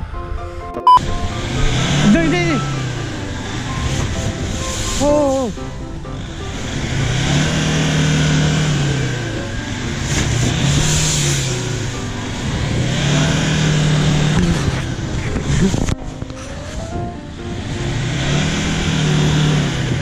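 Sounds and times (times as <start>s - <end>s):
car engine revving hard: 1.0s - 16.0s, 17.3s - 20.0s.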